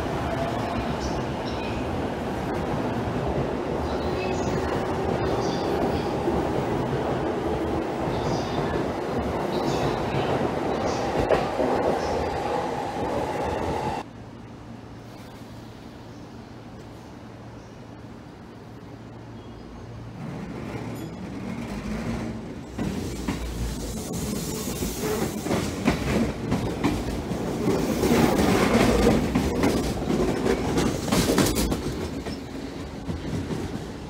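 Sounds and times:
electric train running past: 0:00.0 - 0:34.0
wheels clacking over rail joints: 0:20.5 - 0:34.0.

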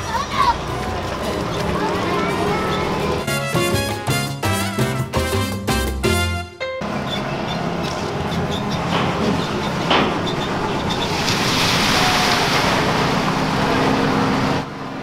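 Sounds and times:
water splashing: 0:10.8 - 0:14.0.

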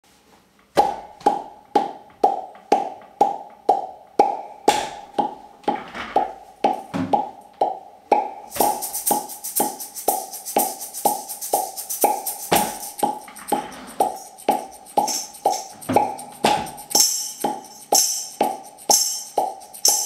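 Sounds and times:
mouth percussion popping knock: 0:00.8 - 0:20.0
hissy shaker-like beat: 0:08.1 - 0:20.0.

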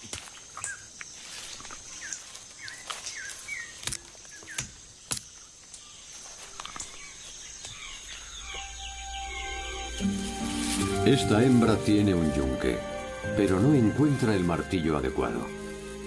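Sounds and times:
high insect drone: 0:00.0 - 0:16.0
bird chirps: 0:01.8 - 0:11.6.

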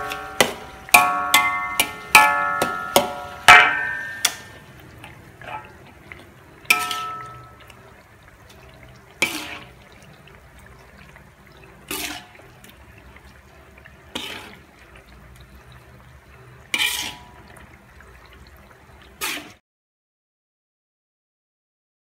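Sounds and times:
metal spoon scraping a wok: 0:00.0 - 0:04.5, 0:06.7 - 0:07.6, 0:09.2 - 0:09.8, 0:11.8 - 0:12.4, 0:14.2 - 0:14.6, 0:16.7 - 0:17.4, 0:19.2 - 0:19.6.

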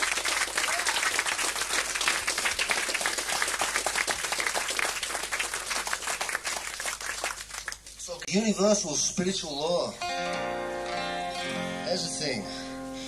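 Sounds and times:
audience clapping: 0:00.0 - 0:08.3.

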